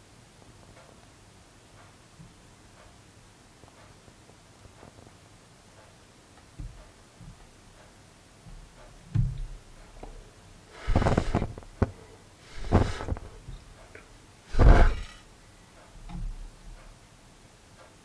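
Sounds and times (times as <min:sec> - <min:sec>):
puffs of breath blowing: 0:10.7 - 0:13.5, 0:14.5 - 0:15.2.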